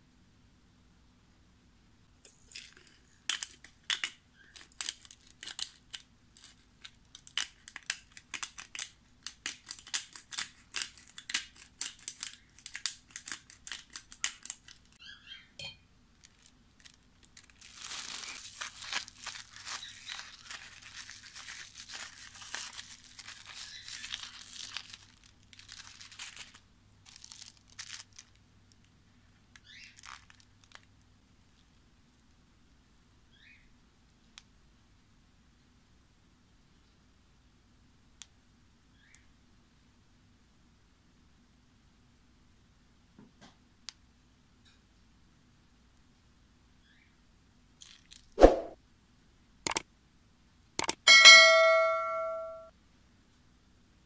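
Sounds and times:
plastic bag crinkling: 2.4s - 15.0s, 16.1s - 28.4s, 29.6s - 30.9s.

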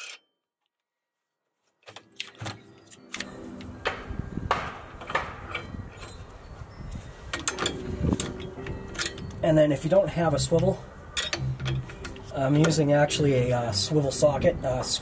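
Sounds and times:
metal hand tools clinking: 4.8s - 13.2s.

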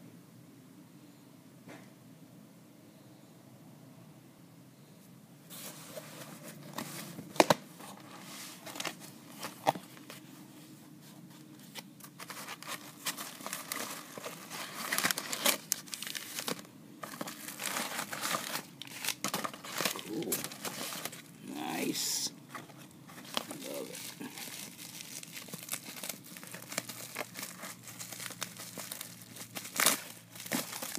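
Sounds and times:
bubble wrap crinkling: 11.5s - 30.9s
cardboard box tearing: 12.2s - 21.3s, 23.2s - 30.9s.

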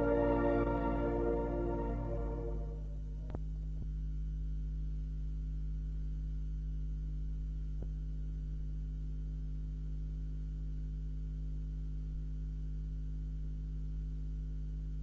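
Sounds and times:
closing music: 0.0s - 3.0s
low electrical hum: 0.0s - 15.0s.

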